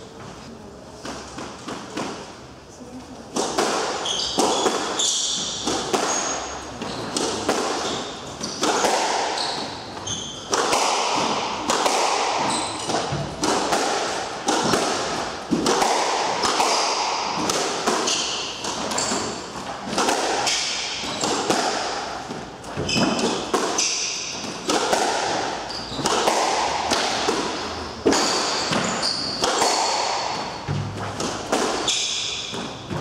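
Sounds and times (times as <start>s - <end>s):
squash ball hits: 1.0s - 2.4s, 3.3s - 33.0s
shoes squeaking on wooden floor: 4.0s - 10.6s, 12.4s - 13.4s, 18.0s - 19.7s, 21.0s - 21.5s, 22.2s - 24.0s, 25.5s - 26.2s, 27.6s - 33.0s.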